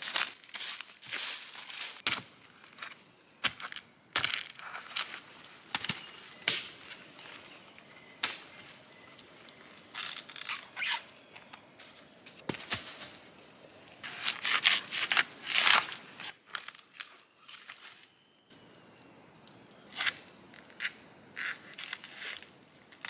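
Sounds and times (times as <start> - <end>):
dry leaves and twigs crunching: 0.0 - 18.2
high insect drone: 0.1 - 23.0.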